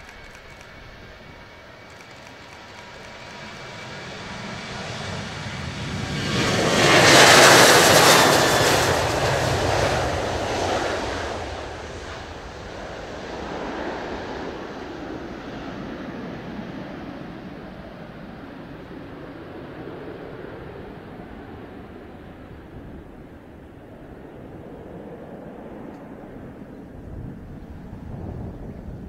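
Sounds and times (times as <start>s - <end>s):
jet engines roaring at takeoff: 0.0s - 29.0s.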